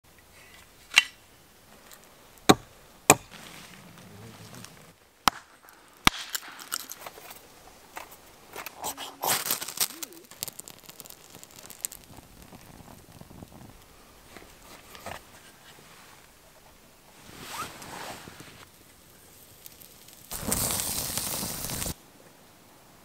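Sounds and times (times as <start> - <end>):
hatchet chopping wood: 2.5 - 3.4, 5.2 - 6.9
scraping and rustling: 3.2 - 5.0, 6.3 - 18.7.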